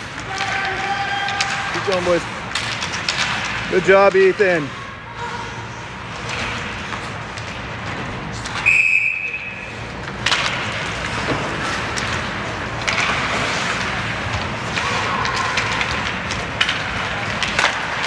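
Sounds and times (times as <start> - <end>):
ice rink background noise: 0.0 - 18.0
referee's whistle: 8.6 - 9.6.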